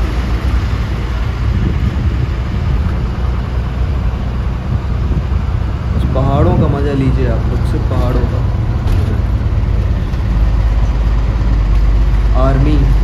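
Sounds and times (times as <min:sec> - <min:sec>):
car road noise from inside: 0:00.0 - 0:13.0.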